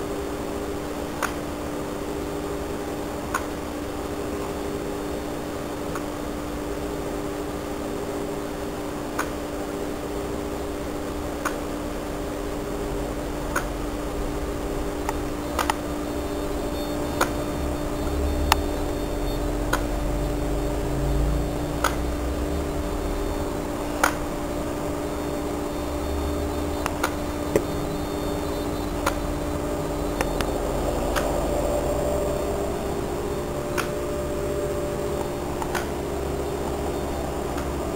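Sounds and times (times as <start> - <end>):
electric motor whine: 11.9 - 37.9
sharp click: 35.6 - 35.9.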